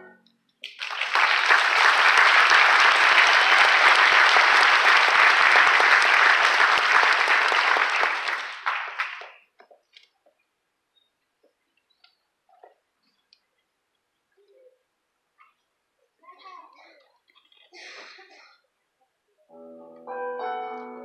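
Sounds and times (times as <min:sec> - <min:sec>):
audience applauding: 0:00.6 - 0:09.5.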